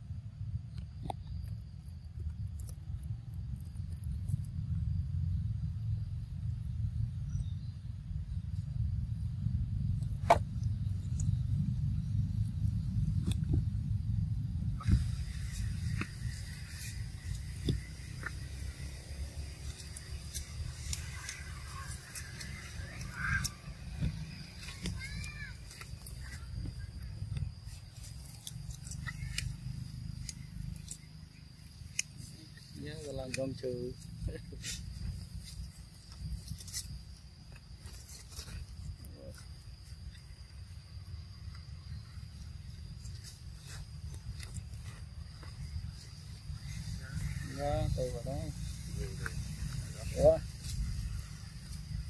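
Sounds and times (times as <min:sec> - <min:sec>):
low rumble: 0:00.0 - 0:37.7
high insect trill: 0:00.0 - 0:52.0
monkeys crunching cucumbers: 0:14.8 - 0:26.7, 0:27.7 - 0:37.0.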